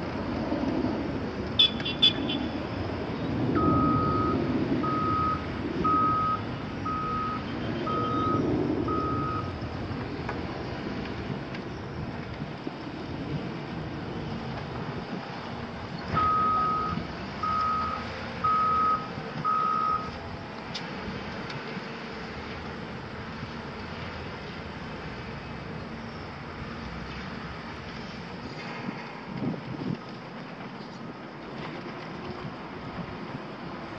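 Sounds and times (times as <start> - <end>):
diesel machinery running: 0.0 - 33.9
reversing alarm beeps: 3.6 - 9.6, 16.2 - 20.1.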